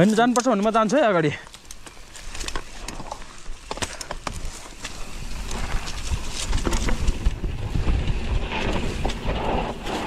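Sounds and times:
mountain bike clattering: 0.0s - 10.0s
wind rumble on microphone: 4.2s - 10.0s.

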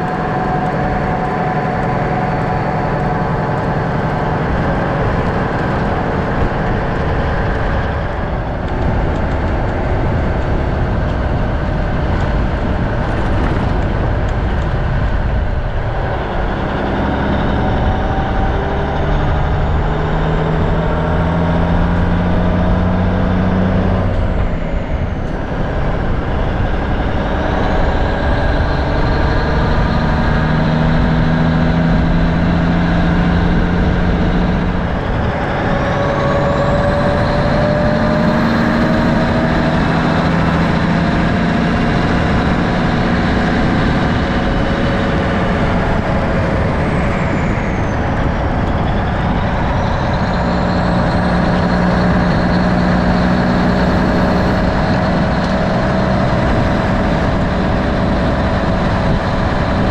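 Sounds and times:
diesel truck engine under load: 0.0s - 59.9s
gravel road noise: 0.0s - 59.9s
wind: 0.0s - 59.9s.

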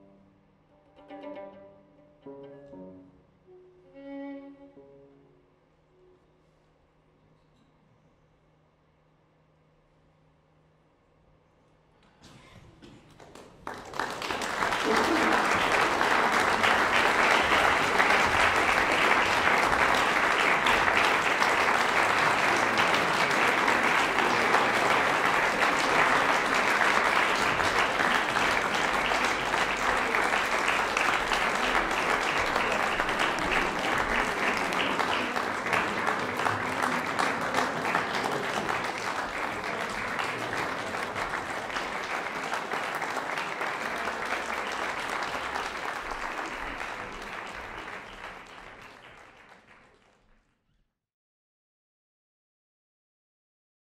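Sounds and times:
audience applauding: 12.9s - 50.5s.

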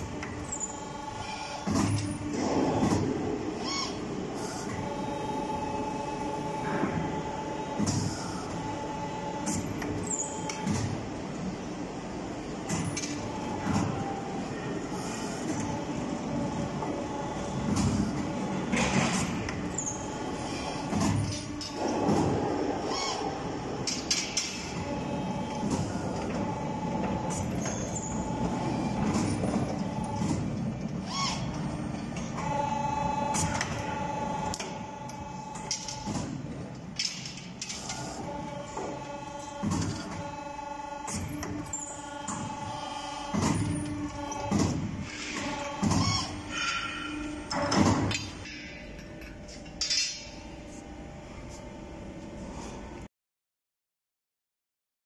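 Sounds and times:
machine hum with thin whine: 0.0s - 53.1s
sharp mechanical clicks and clunks: 9.4s - 11.1s, 23.8s - 42.7s, 43.3s - 50.4s.

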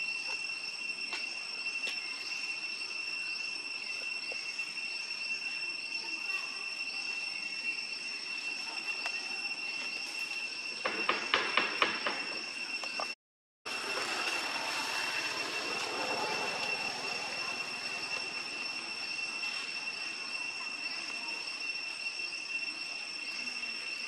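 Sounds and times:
high-pitched insect drone: 0.0s - 24.0s
short rising chirps: 13.7s - 24.0s.

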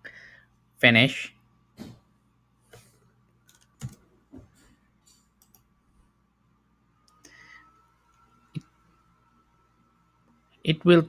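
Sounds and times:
computer mouse clicks: 2.7s - 4.0s, 5.1s - 5.7s.

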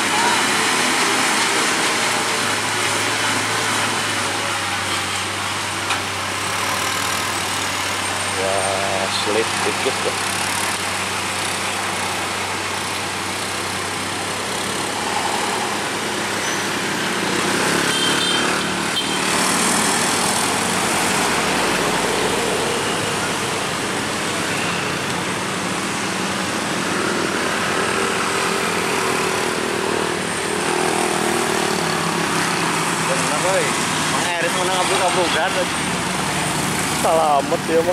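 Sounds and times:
truck diesel engine droning uphill: 0.0s - 17.9s
motorcycles passing: 0.0s - 37.9s.

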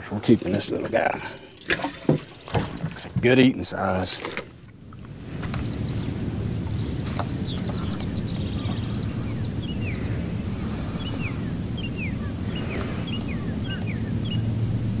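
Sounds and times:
birds calling: 0.0s - 15.0s
wind rumble on microphone: 4.6s - 15.0s.

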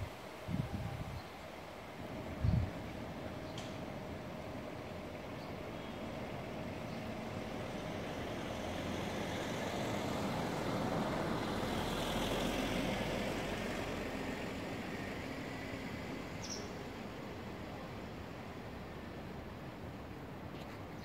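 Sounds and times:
city traffic rumble: 0.0s - 21.0s
vehicle passing: 7.4s - 16.3s.

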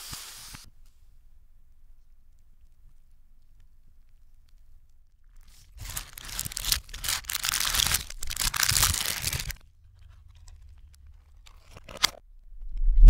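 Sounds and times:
paper crinkling and rustling reversed: 5.3s - 12.2s
cardboard box handling: 5.5s - 12.2s.

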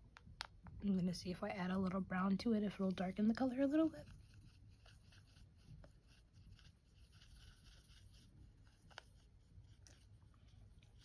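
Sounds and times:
paintbrush brushing on palette: 2.6s - 11.0s.

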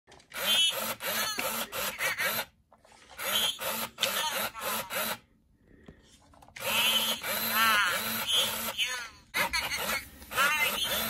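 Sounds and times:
toy motor clicking: 0.2s - 5.3s, 6.4s - 11.0s
toy babbling electronic chirping: 6.6s - 11.0s.

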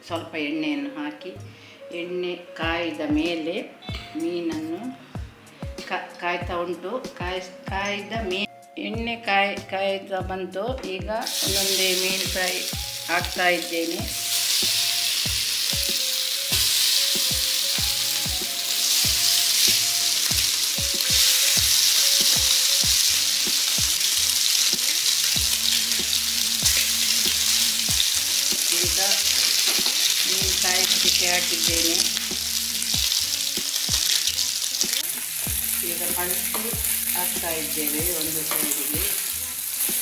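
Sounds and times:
fish sizzling in hot oil: 11.2s - 40.0s.

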